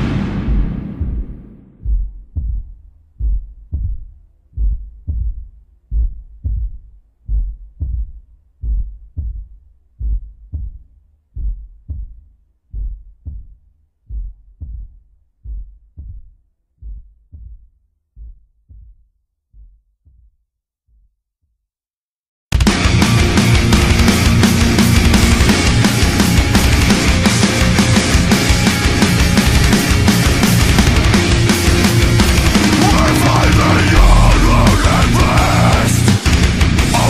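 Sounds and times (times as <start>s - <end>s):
loud music: 0.0s - 1.8s, 22.6s - 37.0s
heartbeat thumps: 0.0s - 21.2s, 23.6s - 37.0s.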